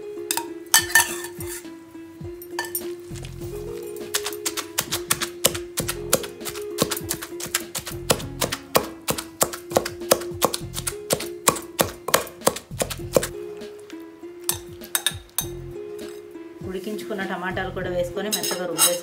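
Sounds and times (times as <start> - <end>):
background music: 0.0 - 19.0
pestle pounding in stone mortar: 4.0 - 13.4.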